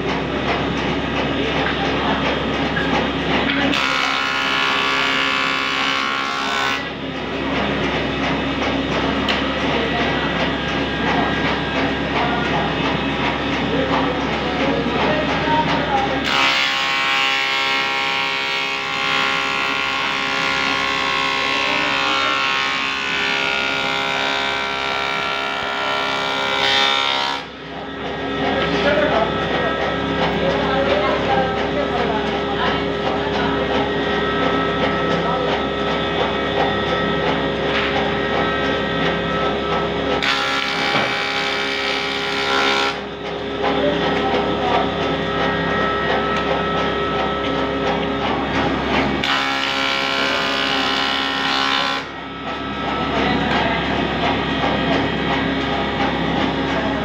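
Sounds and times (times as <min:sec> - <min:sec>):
wood planer humming: 0:00.0 - 0:57.0
electric wood planer whining: 0:03.7 - 0:06.9, 0:16.2 - 0:27.4, 0:40.2 - 0:43.0, 0:49.2 - 0:52.2.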